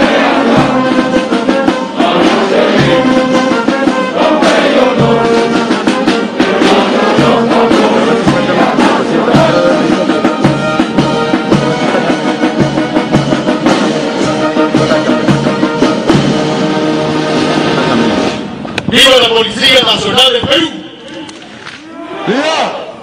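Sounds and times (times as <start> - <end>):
voices singing along: 0.0 - 13.8
steady drum beat: 0.0 - 18.2
brass band music: 0.0 - 21.5.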